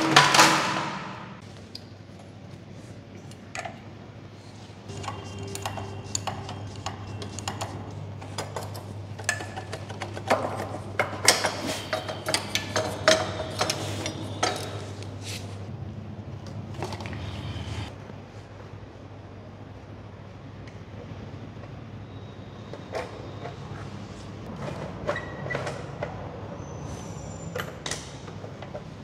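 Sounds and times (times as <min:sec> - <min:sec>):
metal tools clinking and knocking: 0:07.5 - 0:15.0.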